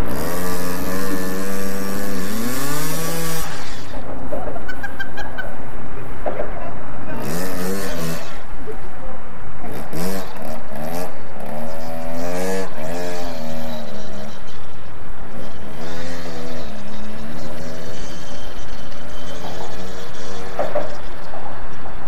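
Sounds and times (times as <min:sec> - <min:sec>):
dirt bike engine revving: 0:00.0 - 0:04.7, 0:07.0 - 0:08.8, 0:09.5 - 0:22.0.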